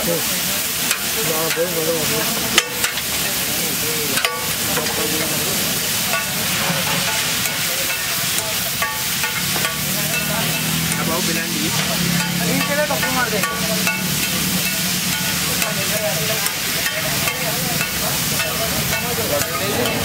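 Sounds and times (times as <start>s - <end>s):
onion and tomato sizzling in oil: 0.0s - 20.0s
ladle and spatula scraping griddle: 0.2s - 20.0s
sharp metal clanks: 2.5s - 3.1s, 4.1s - 5.3s, 6.0s - 20.0s.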